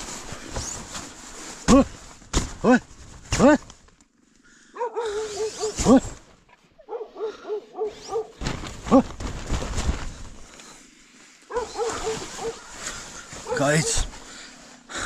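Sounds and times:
rustling: 0.0s - 4.4s, 5.0s - 14.9s
dogs barking: 4.8s - 5.8s, 6.8s - 8.4s, 11.5s - 12.7s, 13.4s - 14.1s.

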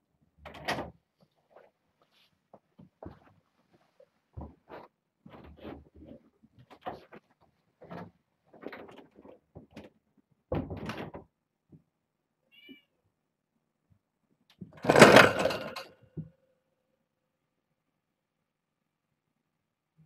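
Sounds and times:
light knocks and scuffles: 1.2s - 8.1s
faint high kitten mew: 12.5s - 13.0s.

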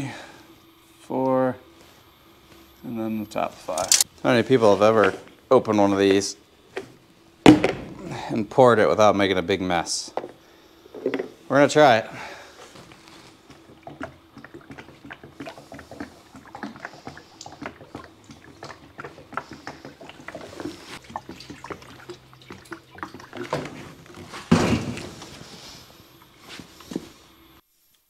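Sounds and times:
bucket bump: 7.5s - 8.2s, 17.6s - 25.2s.

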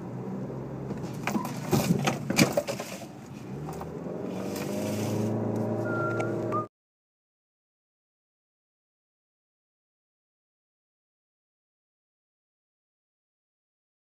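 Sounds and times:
car engine hum: 0.0s - 6.7s
road noise inside car: 0.0s - 6.7s.

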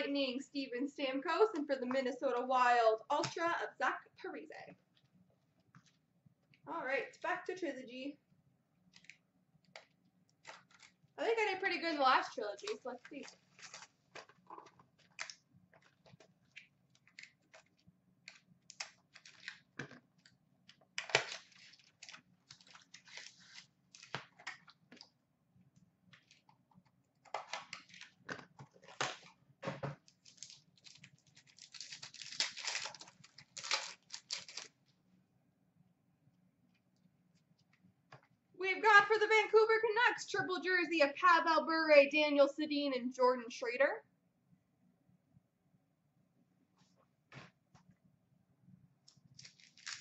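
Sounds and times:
wrapper tearing and crinkling: 10.4s - 11.0s, 12.6s - 14.0s, 16.5s - 19.7s, 21.0s - 24.2s, 30.1s - 34.8s, 49.4s - 50.0s.

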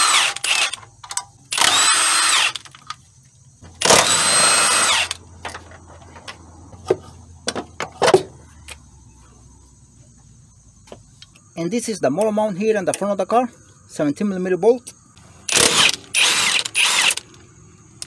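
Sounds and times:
impact wrench spinning: 15.5s - 17.3s.

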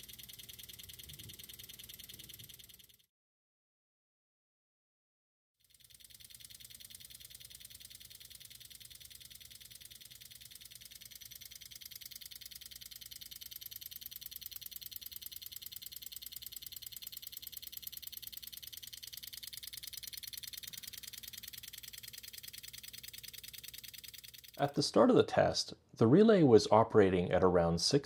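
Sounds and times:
relays clicking rapidly: 0.0s - 3.0s, 5.7s - 24.8s.

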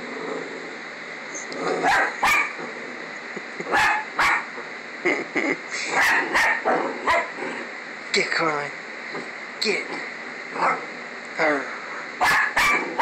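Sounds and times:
small dog barking sharply: 1.8s - 2.5s, 3.8s - 4.5s, 12.2s - 13.0s.

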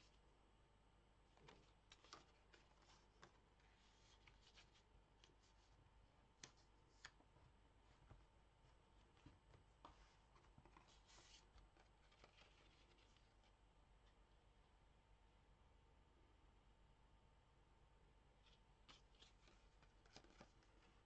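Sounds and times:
paper pages rustling: 1.4s - 5.8s, 6.4s - 7.2s, 9.0s - 13.6s, 18.4s - 21.0s.

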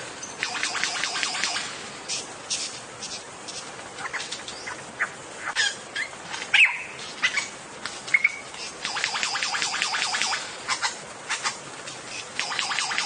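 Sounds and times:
lyrebird calls and clicks: 0.2s - 13.0s.

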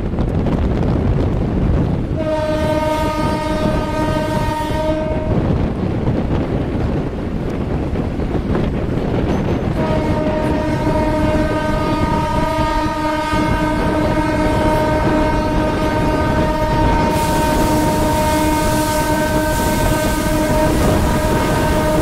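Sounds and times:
train rumble and clatter: 0.0s - 22.0s
locomotive horn blast: 2.2s - 5.6s, 9.8s - 22.0s
air hissing: 17.0s - 22.0s.

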